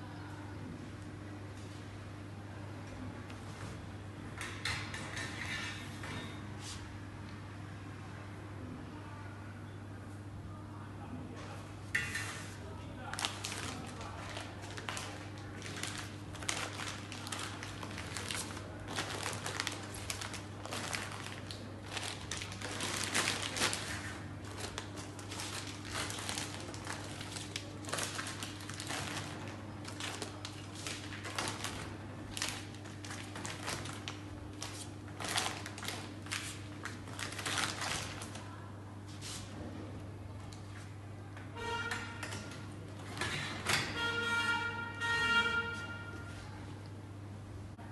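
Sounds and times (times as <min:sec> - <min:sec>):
plastic bags crinkling: 0:13.0 - 0:38.6.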